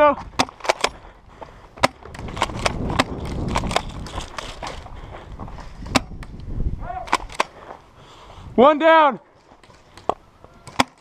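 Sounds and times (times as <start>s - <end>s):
footsteps crunching on dry dirt: 0.0s - 6.6s, 7.5s - 10.6s
wind rumble: 0.2s - 8.6s
camera handling noise: 1.8s - 4.9s, 7.1s - 7.6s.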